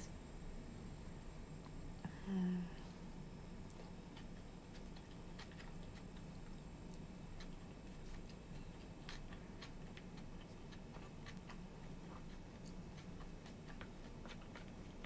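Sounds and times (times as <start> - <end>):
room hum: 0.0 - 15.0
chewing: 3.6 - 15.0.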